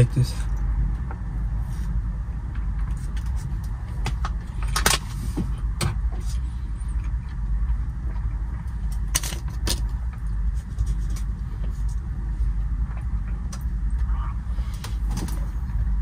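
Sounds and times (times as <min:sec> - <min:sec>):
truck engine and road noise: 0:00.0 - 0:16.0
sharp clicks and rattles: 0:07.0 - 0:12.1.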